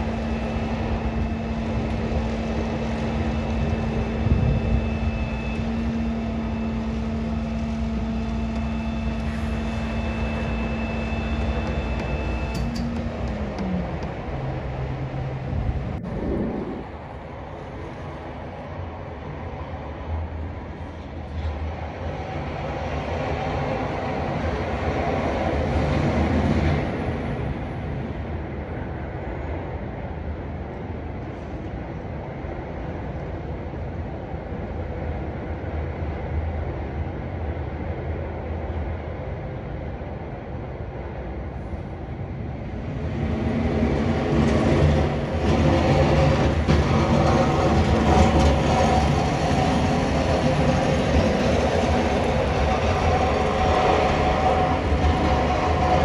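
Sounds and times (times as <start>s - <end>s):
diesel truck engine humming: 0.0s - 17.3s
broad rumble and hiss: 0.0s - 56.0s.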